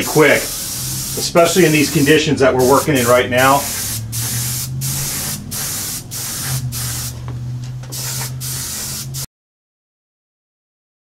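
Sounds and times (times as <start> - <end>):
airbrush spraying hiss: 0.0 - 7.2, 7.9 - 9.3.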